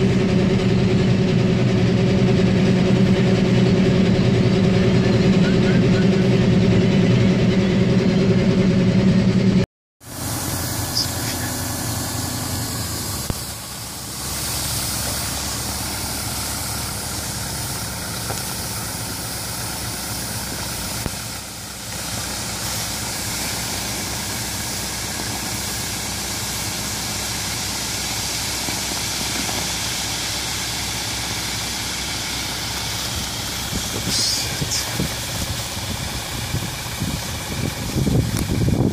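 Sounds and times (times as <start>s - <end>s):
tractor engine idling: 0.0s - 38.9s
grain hissing as it slides: 10.0s - 38.6s.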